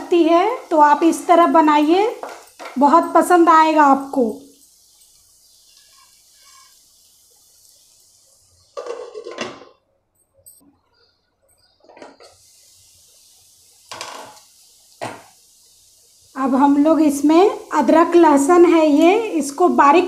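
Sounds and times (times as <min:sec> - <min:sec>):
pan lid and utensil clattering: 0:08.8 - 0:09.7.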